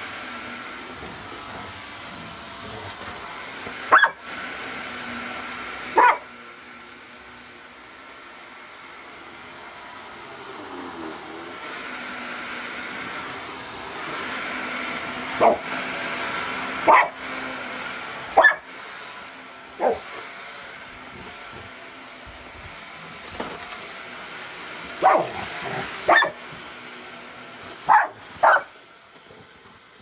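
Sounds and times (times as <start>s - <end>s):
vacuum cleaner motor hum: 0.0s - 30.0s
dog barking: 3.9s - 4.2s, 6.0s - 6.3s, 15.4s - 15.6s, 16.8s - 17.2s, 18.4s - 18.6s, 19.8s - 20.0s, 25.0s - 25.4s, 26.1s - 26.4s, 27.9s - 28.7s.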